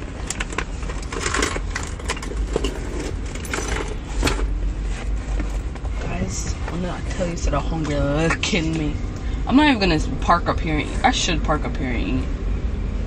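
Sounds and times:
car engine and road rumble: 0.0s - 13.0s
clicks and rattles: 0.2s - 4.5s.

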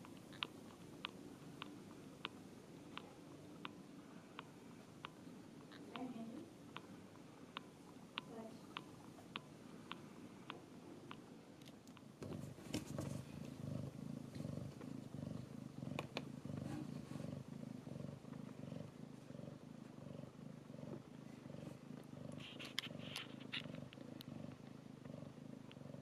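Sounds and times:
faint clicks: 0.0s - 12.1s
cat purring: 0.0s - 26.0s.

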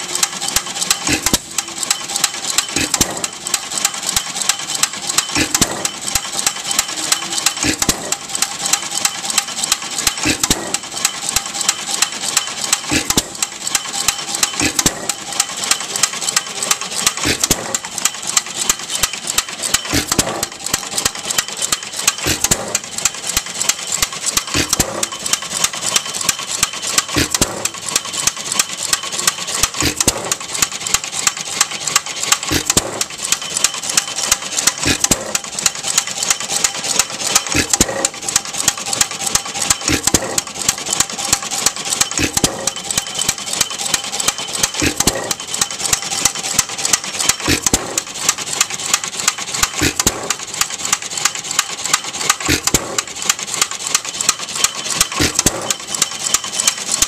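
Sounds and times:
rapid clicking of valve gear: 0.0s - 57.0s
gas engine firing: 19.7s - 21.4s, 22.0s - 22.9s, 32.5s - 33.1s.

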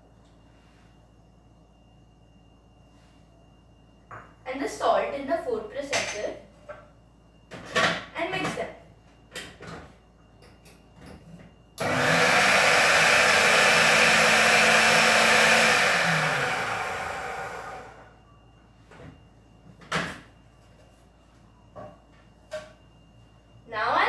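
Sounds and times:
food processor motor whirring: 11.8s - 18.1s.

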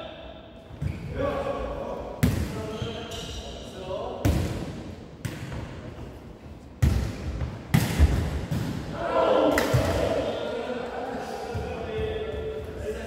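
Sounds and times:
players calling out: 8.9s - 11.8s.

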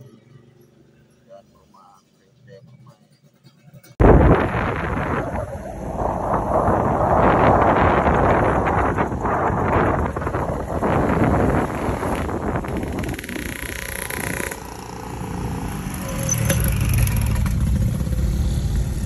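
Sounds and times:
low engine rumble: 4.0s - 19.0s
wind buffeting microphone: 4.0s - 19.0s.

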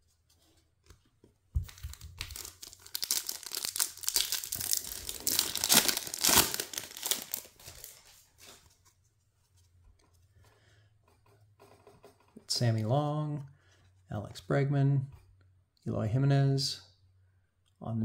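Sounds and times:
foil wrapper tearing and crinkling: 1.7s - 8.0s.

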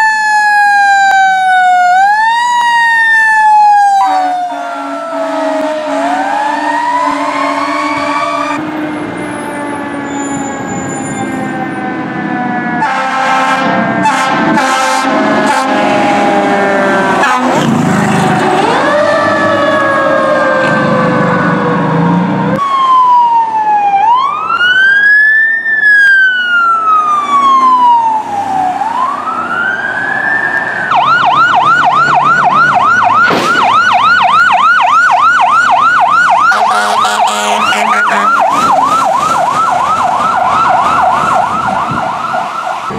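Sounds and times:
siren fast yelp: 0.0s - 8.6s, 9.2s - 21.7s, 22.5s - 42.9s
fire truck siren wailing: 0.0s - 42.9s
air horn blasts: 4.0s - 8.6s, 12.8s - 16.1s, 17.0s - 17.8s, 36.5s - 38.7s.

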